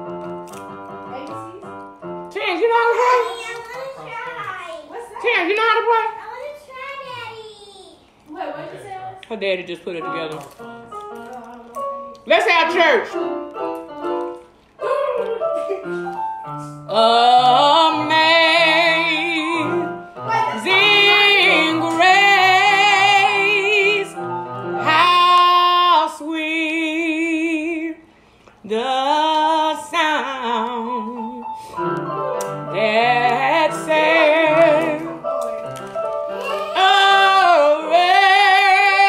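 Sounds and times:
electronic keyboard chords: 0:10.1 - 0:25.0
woman singing with vibrato: 0:16.9 - 0:20.0, 0:20.6 - 0:24.2, 0:24.8 - 0:28.0, 0:28.6 - 0:31.5, 0:32.6 - 0:35.2, 0:36.7 - 0:39.0.

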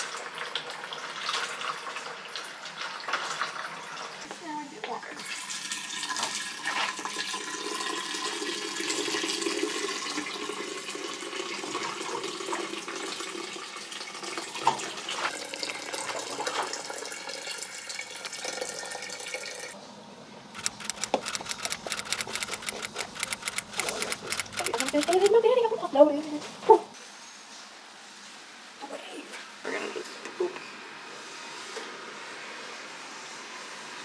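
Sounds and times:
fast rhythmic ticking: 0:20.6 - 0:25.4.

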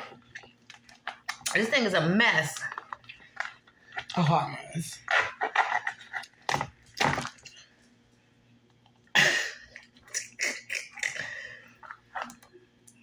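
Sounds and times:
shell cracking and crunching: 0:05.0 - 0:07.6.

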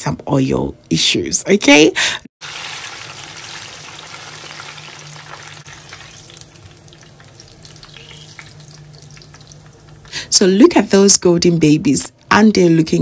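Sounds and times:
plantain deep-frying in oil: 0:02.4 - 0:10.4.

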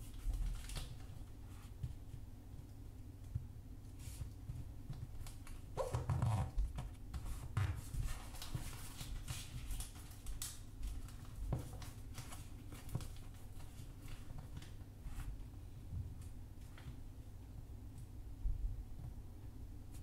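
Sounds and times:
paper rustling and crackling: 0:00.0 - 0:02.0, 0:04.0 - 0:15.4.

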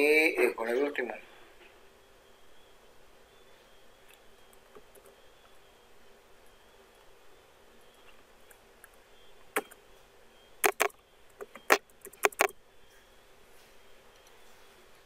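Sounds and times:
keyboard keystrokes: 0:10.6 - 0:12.5.

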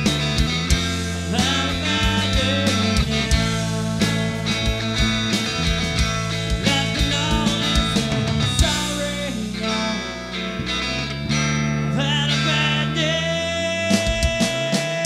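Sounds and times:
drum kit: 0:00.0 - 0:10.3, 0:13.9 - 0:15.0
bass guitar: 0:00.0 - 0:15.0
distorted electric guitar: 0:00.0 - 0:15.0.

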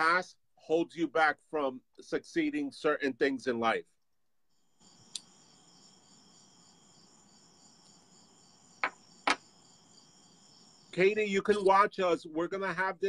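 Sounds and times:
crickets chirring: 0:04.5 - 0:12.2.

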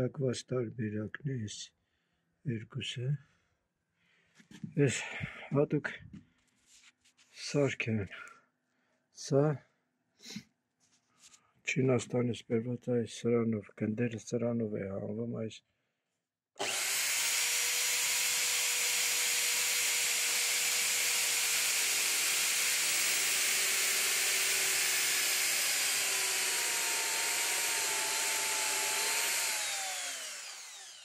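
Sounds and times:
electric drill boring into wood: 0:16.6 - 0:31.0
motor whine winding down: 0:16.6 - 0:31.0.

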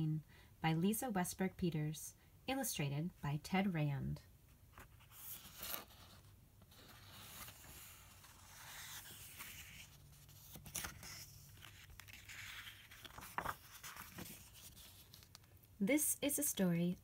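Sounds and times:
paper pages turning: 0:04.7 - 0:15.7.

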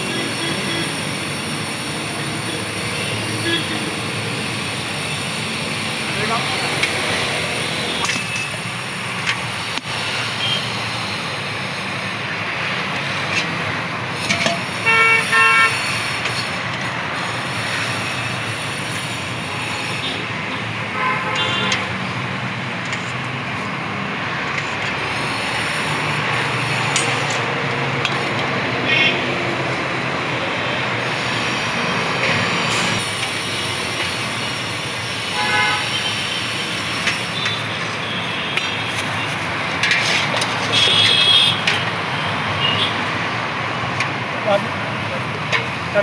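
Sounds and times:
road traffic: 0:00.0 - 0:46.0.

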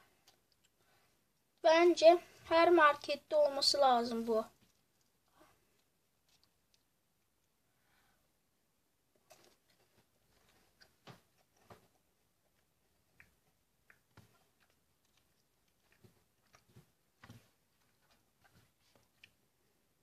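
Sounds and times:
faint clicks and crackles: 0:00.0 - 0:01.7, 0:04.4 - 0:07.6, 0:09.1 - 0:19.8.

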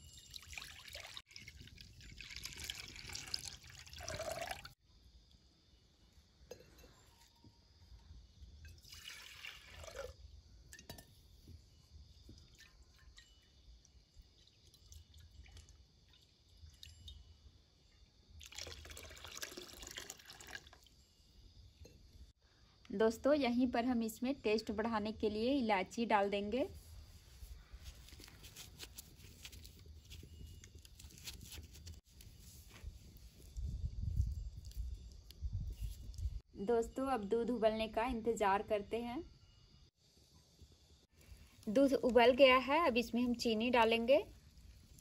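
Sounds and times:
milk pouring and splashing: 0:00.0 - 0:04.8, 0:08.7 - 0:10.3, 0:12.3 - 0:17.2, 0:18.4 - 0:20.9.

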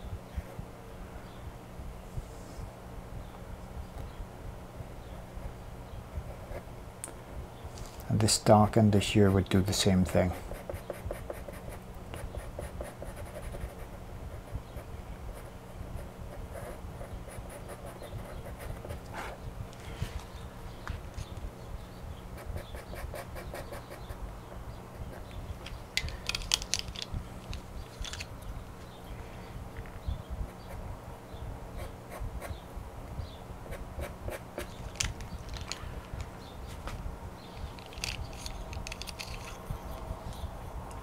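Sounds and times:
low steady hum: 0:00.0 - 0:41.0
pencil scratching on paper: 0:10.3 - 0:14.0.

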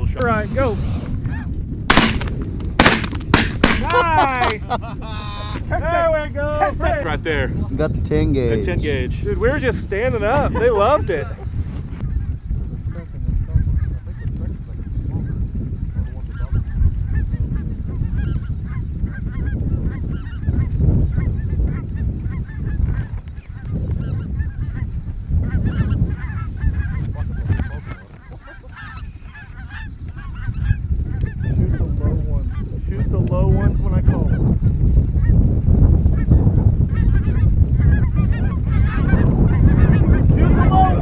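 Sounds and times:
wind rumble on microphone: 0:00.0 - 0:41.0
flock of geese honking: 0:12.0 - 0:35.4, 0:36.0 - 0:41.0.

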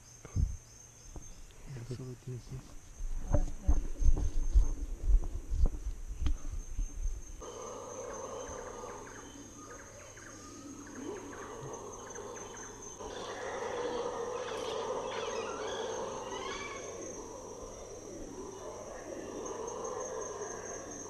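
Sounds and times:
high-pitched insect drone: 0:00.0 - 0:21.0
bird chirps: 0:07.4 - 0:17.4
howler monkeys roaring: 0:07.4 - 0:21.0.

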